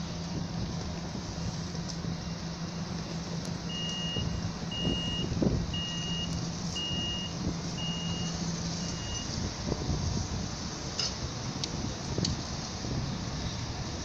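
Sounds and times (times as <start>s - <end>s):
low hum and rumble: 0.0s - 14.0s
high-pitched warning beeps: 3.7s - 9.4s.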